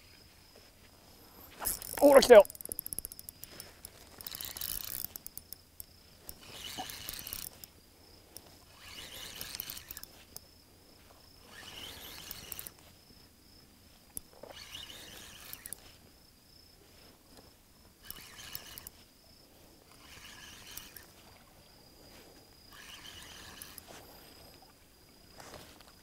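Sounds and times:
high-pitched insect trill: 1.2s - 16.8s, 17.8s - 25.4s
fishing reel winding: 1.6s - 7.7s, 8.3s - 10.5s, 11.4s - 12.9s, 14.1s - 16.0s, 18.0s - 19.0s, 19.9s - 21.4s, 22.7s - 24.4s.

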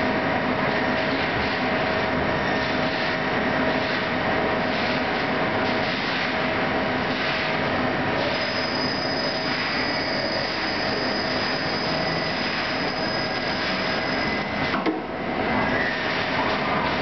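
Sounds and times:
lathe cutting with coolant spray: 8.2s - 14.8s.

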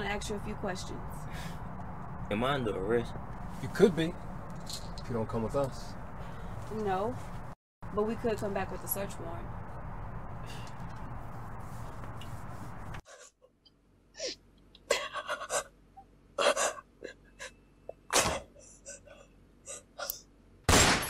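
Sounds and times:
woman gasping and sobbing: 16.4s - 20.2s.

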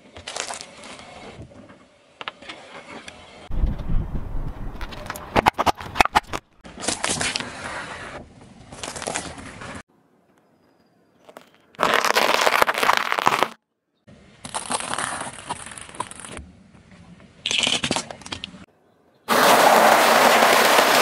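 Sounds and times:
tyre crushing crunchy snacks: 11.2s - 13.6s, 14.4s - 16.4s, 17.5s - 18.4s.

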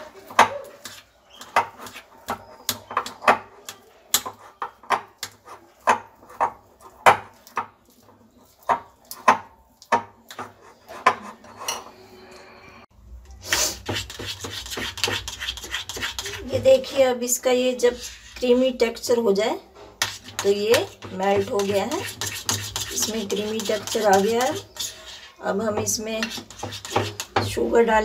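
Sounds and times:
spoon scraping glass bowl: 10.6s - 12.5s, 13.5s - 16.5s, 20.0s - 27.4s.

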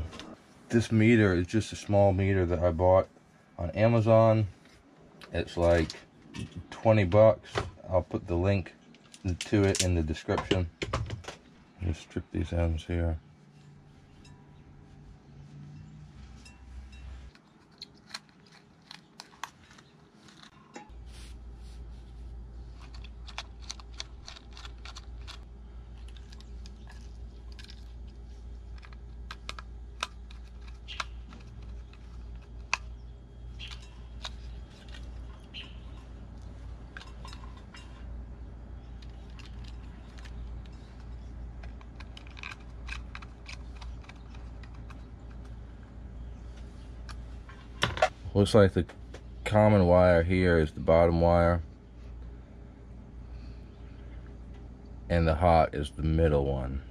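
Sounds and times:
steady low hum: 0.0s - 56.9s
wire stripping clicks and scrapes: 16.4s - 21.0s, 22.7s - 38.1s, 38.9s - 45.6s.

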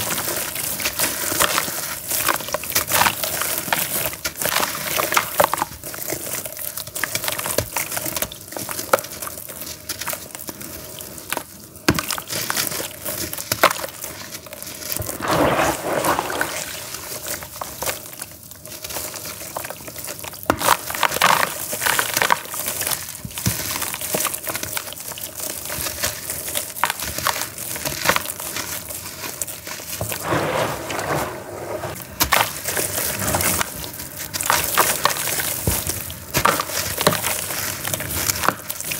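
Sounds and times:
charcoal crumbling by hand: 11.9s - 38.9s
crumbs dropping into water: 12.0s - 31.2s.

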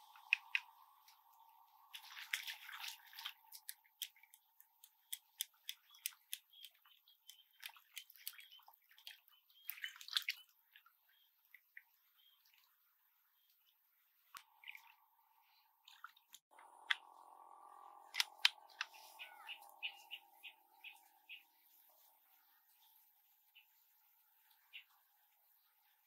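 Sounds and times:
fish splashing in shallow water: 0.1s - 4.8s, 7.4s - 10.8s
sharp clicks and taps: 3.6s - 8.5s.

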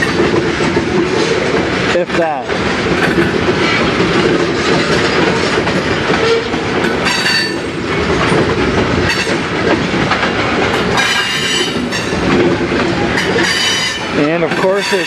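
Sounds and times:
steel wheels on rails: 0.0s - 15.0s
high wheel squeal: 13.2s - 15.0s.

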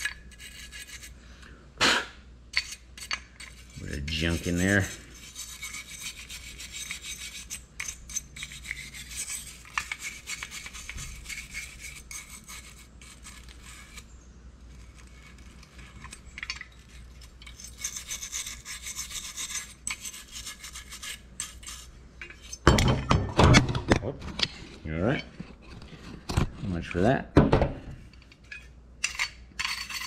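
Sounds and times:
wire brush scrubbing rusty steel: 0.0s - 1.2s, 2.5s - 22.7s.

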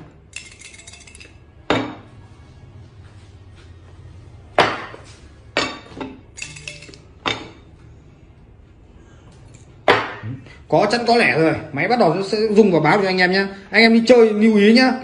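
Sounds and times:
ceramic bowl and plate clinking: 5.6s - 7.7s.

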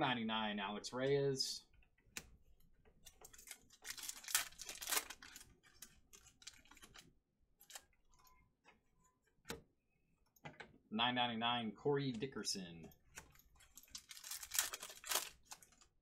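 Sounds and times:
foil wrapper crinkling: 3.2s - 7.0s, 13.6s - 15.9s.

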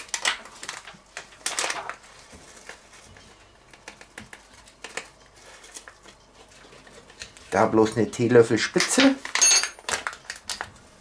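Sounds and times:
plastic bag crinkling: 0.0s - 3.1s.

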